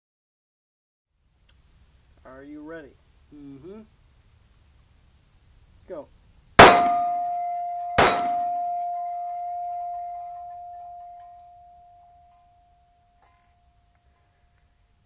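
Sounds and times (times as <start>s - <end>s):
bullet striking steel plate: 6.6s - 12.6s.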